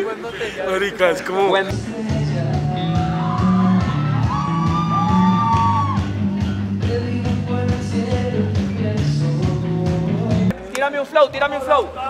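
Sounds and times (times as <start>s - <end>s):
rock band playing: 1.8s - 10.5s.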